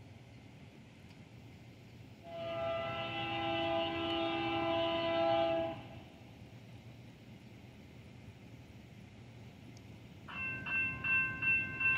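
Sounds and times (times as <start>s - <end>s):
locomotive air horn blast: 2.2s - 6.1s.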